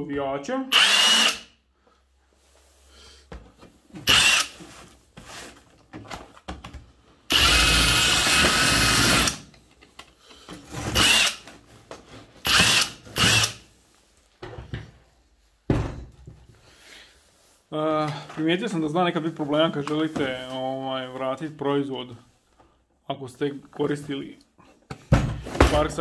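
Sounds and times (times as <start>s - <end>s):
cordless impact wrench: 0.7s - 1.5s, 4.0s - 4.6s, 7.3s - 9.5s, 10.9s - 11.5s, 12.4s - 13.6s.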